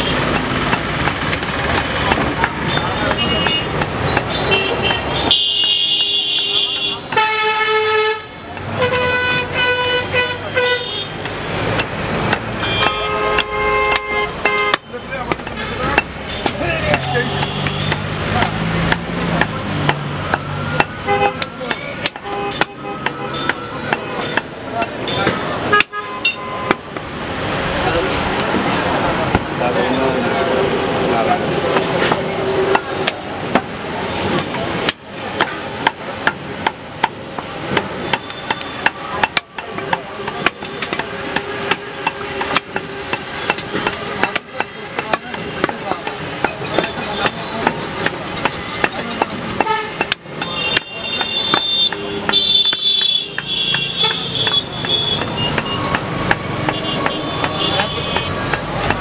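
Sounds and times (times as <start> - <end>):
vehicle horns honking: 2.6 - 11.2, 12.5 - 16.0, 17.1 - 18.0, 20.7 - 26.9, 49.6 - 58.6
blade striking wooden chopping block: 11.2 - 27.1, 34.4 - 59.0.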